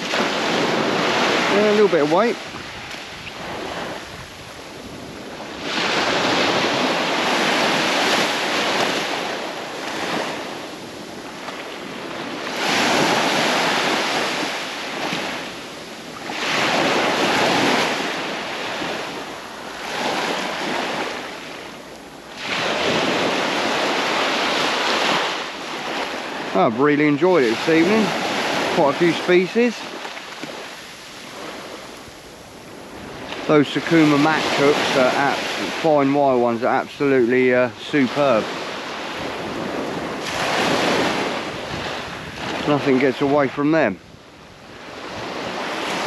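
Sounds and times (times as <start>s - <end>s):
wind on microphone: 0.0s - 26.6s, 38.4s - 46.0s
surf breaking on beach: 0.0s - 46.0s.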